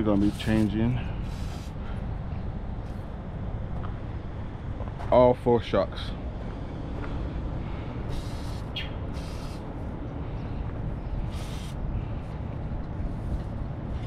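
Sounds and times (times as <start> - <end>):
aerosol spray can hissing: 1.2 - 1.8, 8.1 - 9.6, 11.3 - 11.8.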